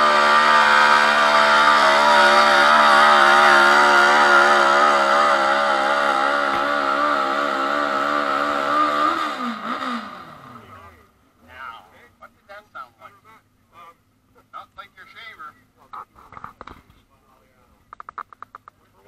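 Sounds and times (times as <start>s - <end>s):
tractor engine running hard: 0.0s - 10.2s.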